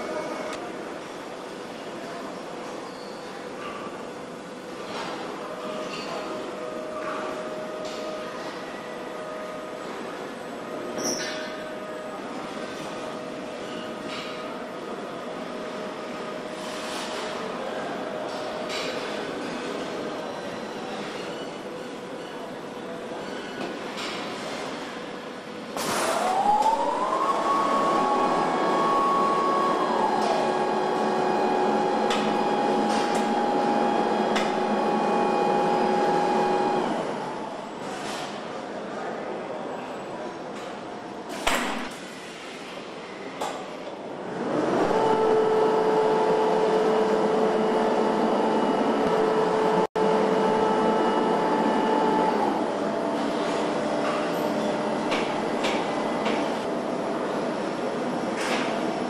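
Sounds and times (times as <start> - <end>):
factory hum: 0.0 - 59.0.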